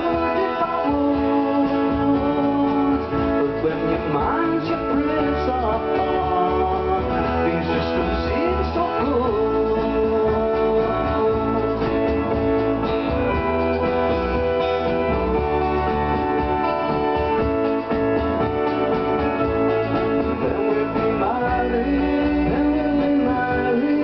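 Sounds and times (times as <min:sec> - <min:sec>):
person singing: 0:00.0 - 0:12.4, 0:20.3 - 0:24.0
acoustic guitar: 0:00.0 - 0:24.0
electronic keyboard: 0:00.0 - 0:24.0.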